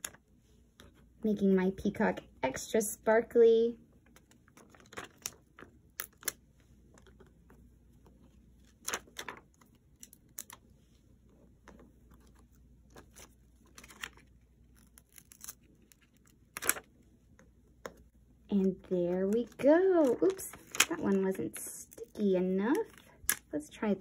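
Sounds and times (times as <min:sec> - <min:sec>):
sticker sheet crinkling: 0:08.6 - 0:10.6, 0:11.6 - 0:16.9, 0:18.7 - 0:23.6.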